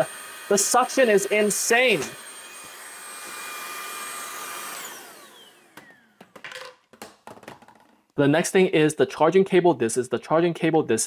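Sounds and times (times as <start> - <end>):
vacuum motor whine: 0.0 - 6.3.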